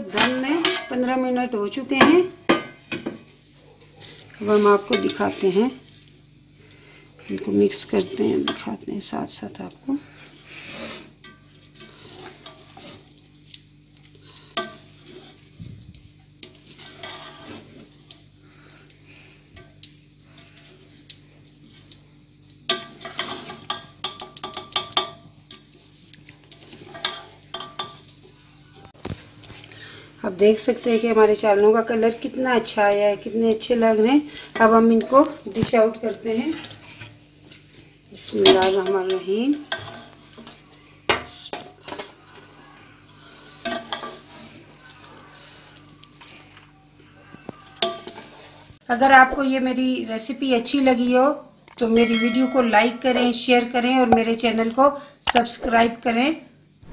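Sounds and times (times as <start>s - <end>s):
faint steady hum: 0.0s - 56.9s
metal spoon scraping a pot: 4.0s - 5.8s, 7.2s - 13.2s, 14.0s - 15.6s, 16.4s - 18.1s, 22.7s - 25.6s, 26.5s - 28.1s, 30.4s - 46.5s, 47.7s - 48.7s
spoon scraping and clinking in pot: 4.2s - 5.7s, 10.7s - 13.2s, 14.2s - 15.5s, 16.4s - 17.9s, 22.7s - 25.6s, 26.7s - 28.1s, 38.3s - 42.1s, 43.2s - 44.5s, 47.8s - 48.6s, 51.9s - 53.3s.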